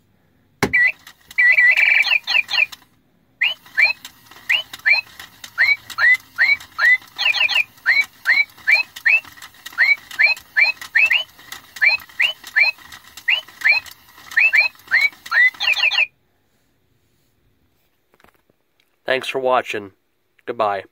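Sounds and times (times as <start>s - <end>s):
electronic bird chirps: 0.6s - 2.8s, 3.4s - 16.1s.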